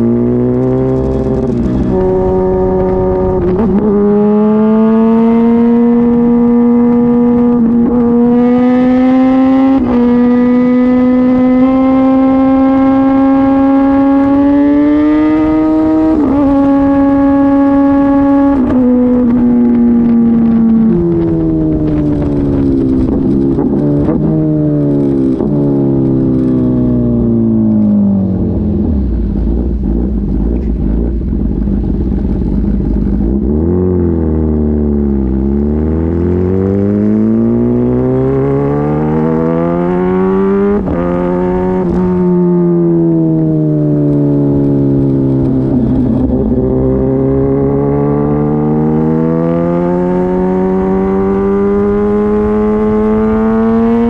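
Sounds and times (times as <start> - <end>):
loud motorcycle engine revving: 0.0 - 54.0.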